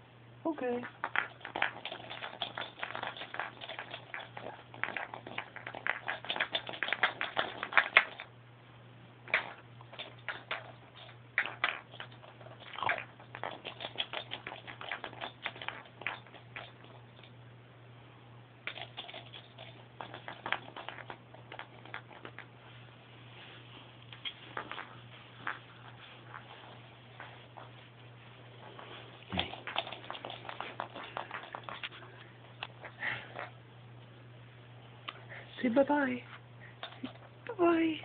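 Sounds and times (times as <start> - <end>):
low steady hum: 0.0 - 38.0
plastic rattle ball clicking: 0.8 - 8.3, 9.3 - 17.3, 18.6 - 22.5, 29.4 - 32.0.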